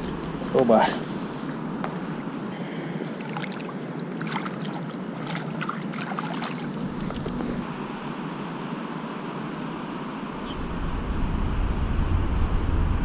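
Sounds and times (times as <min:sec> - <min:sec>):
river water rushing: 0:00.0 - 0:07.6
fish splashing at surface: 0:03.1 - 0:07.6.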